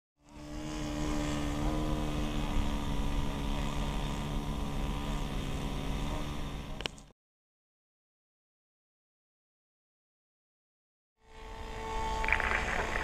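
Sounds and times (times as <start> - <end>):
model plane engine running: 0.2 - 7.1, 11.2 - 13.0.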